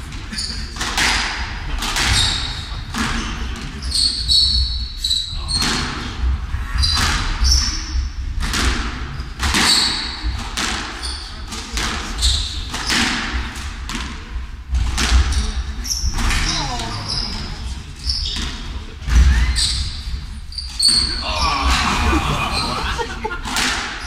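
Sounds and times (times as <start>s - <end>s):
shoe squeaks on hardwood: 2.0s - 5.6s, 15.9s - 21.2s.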